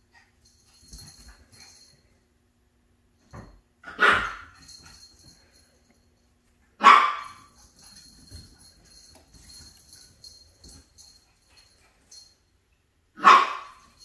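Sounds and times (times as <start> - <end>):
puppy barking: 3.9 - 4.6, 6.8 - 7.5, 13.2 - 13.9.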